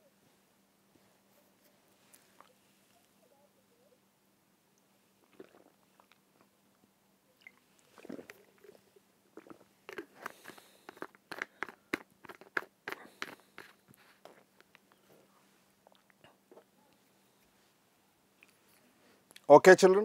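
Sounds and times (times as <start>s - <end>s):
clicks and crunching crackles: 9.4s - 15.0s.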